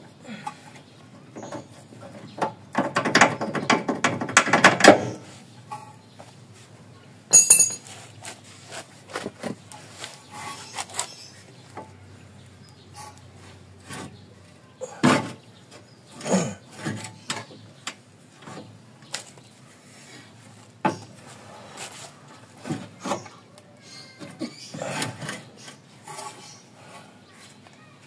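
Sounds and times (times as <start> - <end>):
metal parts clunking and scraping: 1.3 - 6.1, 7.3 - 10.7, 24.1 - 26.6
sharp metal knocks: 7.3 - 7.9.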